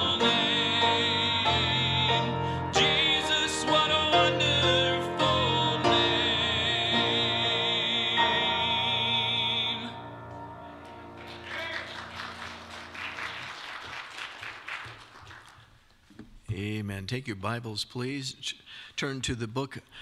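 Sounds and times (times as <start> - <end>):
gospel singing with vibrato: 0.0 - 13.0
piano: 0.0 - 15.5
light applause: 10.8 - 16.0.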